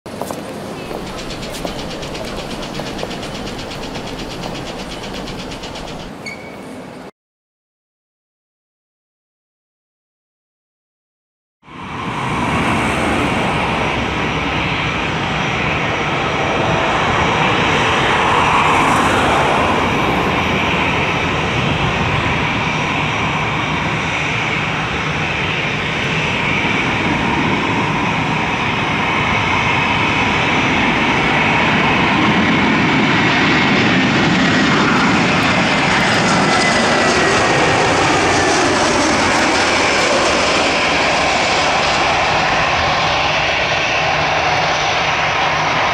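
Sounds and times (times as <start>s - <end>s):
jet engine whine: 0.1s - 7.1s, 11.6s - 45.9s.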